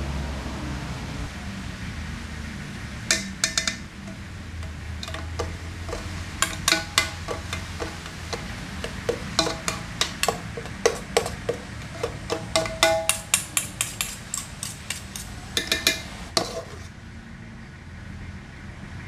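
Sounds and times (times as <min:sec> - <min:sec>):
steady low hum: 0:01.3 - 0:18.6
metal spoons clinking against a pot: 0:03.1 - 0:16.9.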